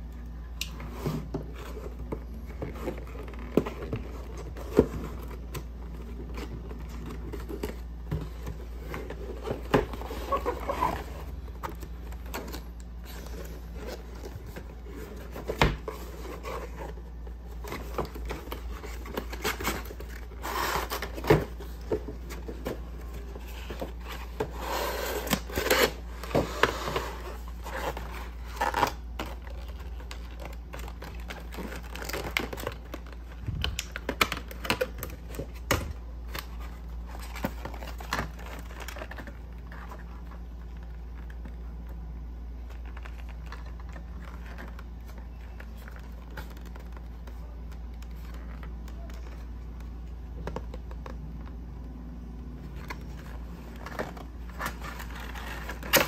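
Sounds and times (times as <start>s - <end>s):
cardboard packaging scraping and rustling: 0.8s - 41.4s, 52.7s - 56.0s.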